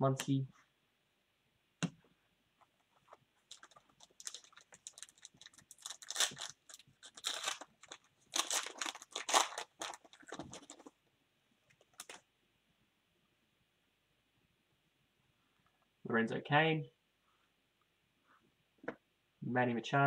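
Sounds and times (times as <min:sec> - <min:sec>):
foil wrapper crackling: 0:03.5 - 0:10.9, 0:11.8 - 0:12.2.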